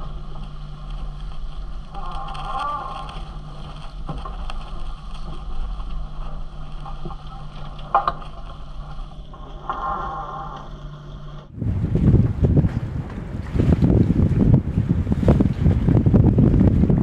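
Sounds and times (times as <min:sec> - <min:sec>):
steady low hum: 0:00.0 - 0:17.0
wind and water rushing: 0:11.5 - 0:17.0.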